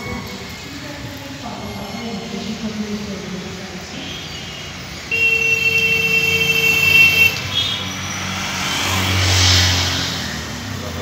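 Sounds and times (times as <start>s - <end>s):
motor vehicle passing: 6.5s - 11.0s.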